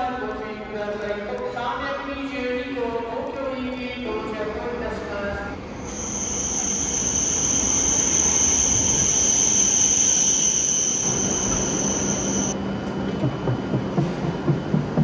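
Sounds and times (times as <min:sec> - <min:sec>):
train rumble: 0:04.0 - 0:15.0
high-pitched train squeal: 0:05.7 - 0:12.6.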